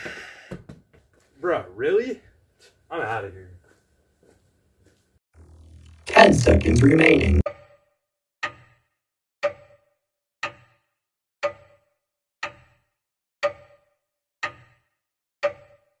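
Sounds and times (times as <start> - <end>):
clock ticking: 8.4 - 8.8, 9.4 - 16.0.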